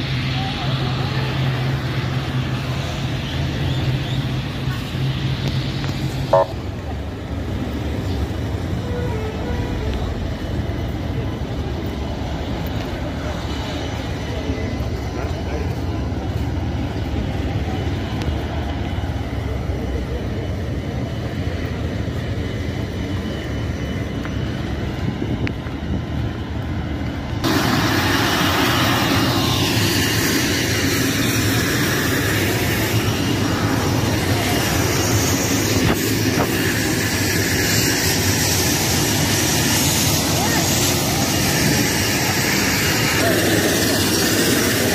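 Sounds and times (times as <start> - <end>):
loud hissy steady noise: 0.0 - 44.9
low rumble of engines: 0.0 - 44.9.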